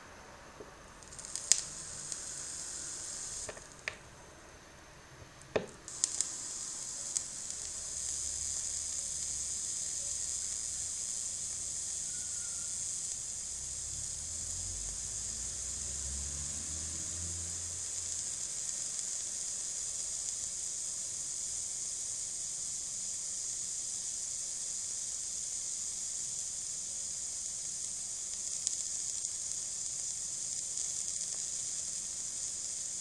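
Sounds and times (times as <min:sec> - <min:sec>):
sharp pops: 0:00.6 - 0:04.1, 0:05.2 - 0:13.3
vape coil sizzling: 0:00.6 - 0:04.2, 0:05.4 - 0:33.0.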